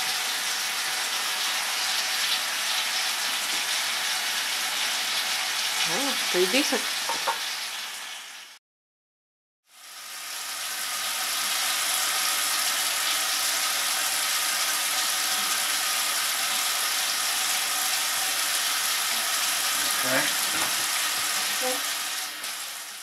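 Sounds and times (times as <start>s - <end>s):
faucet running into a metal sink: 0.0s - 7.7s, 11.3s - 23.0s
shaving brush whisking lather: 5.7s - 7.4s, 13.0s - 22.3s.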